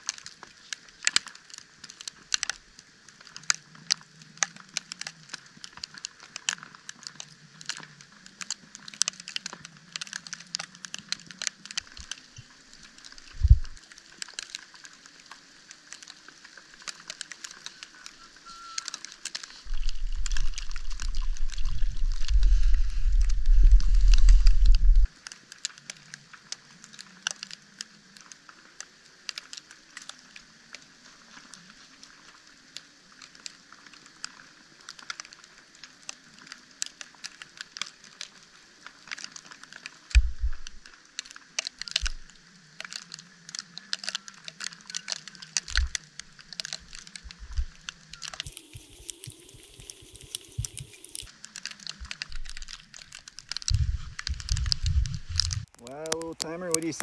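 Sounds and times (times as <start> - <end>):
snow ticking on tent: 0.0 - 57.0
low thumps: 13.4 - 13.8, 19.7 - 25.1, 40.2 - 40.8
loud low rumble: 19.7 - 25.1.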